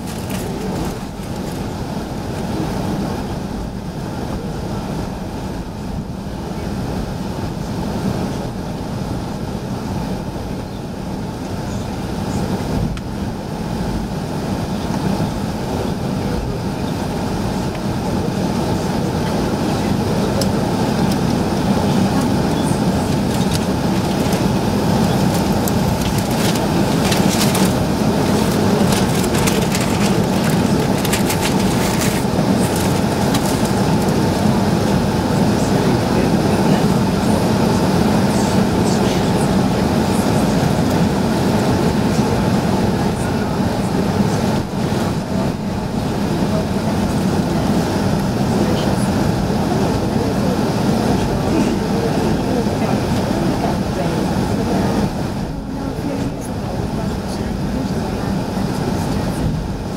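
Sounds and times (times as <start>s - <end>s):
jet engines and airflow rushing: 0.0s - 59.9s
faint clicks and rattles: 23.1s - 34.1s.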